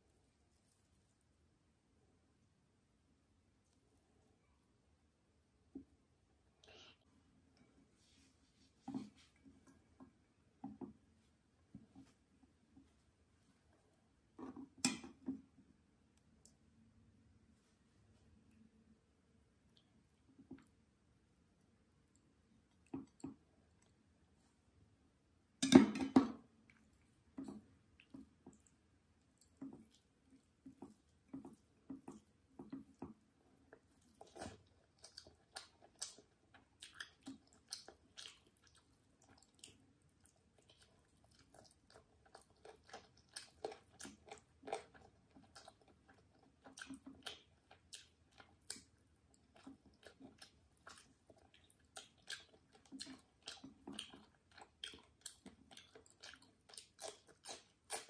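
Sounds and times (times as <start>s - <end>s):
chewing: 26.6s - 58.0s
fingers squishing food: 27.9s - 58.0s.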